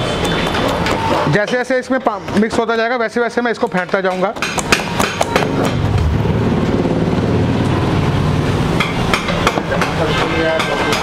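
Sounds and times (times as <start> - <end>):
hand beating batter in bowl: 3.5 - 5.8
sharp knocks against steel bowl: 4.1 - 5.9, 8.8 - 11.0.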